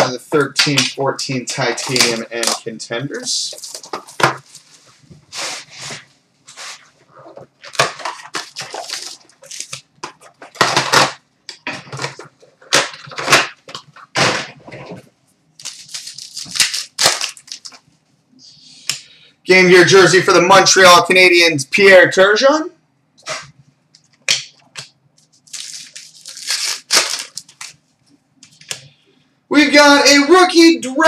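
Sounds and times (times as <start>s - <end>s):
card wrappers crinkling: 1.5s - 4.8s, 7.6s - 10.7s, 15.6s - 17.9s, 25.2s - 27.9s.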